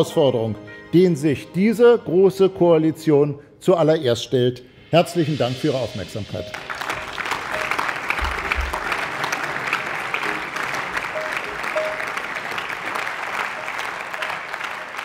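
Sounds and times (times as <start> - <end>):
crowd clapping: 6.4 - 15.0.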